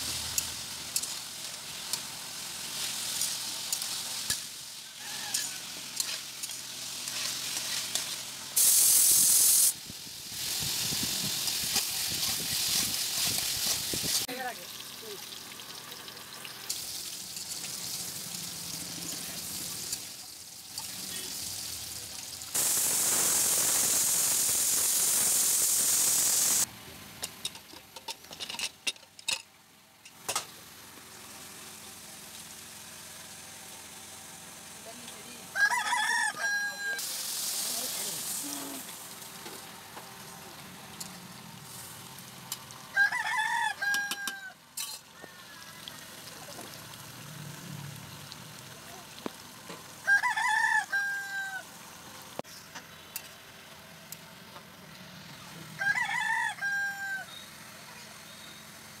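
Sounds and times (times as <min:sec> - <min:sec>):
loud steady hiss: 0:00.0 - 0:27.0, 0:30.2 - 0:35.6, 0:36.8 - 0:42.9
potatoes sizzling in oil: 0:00.0 - 0:27.5, 0:30.2 - 0:59.0
rooster crowing: 0:04.8 - 0:05.8, 0:35.5 - 0:37.0, 0:42.9 - 0:46.2, 0:50.0 - 0:51.8, 0:55.7 - 0:57.5.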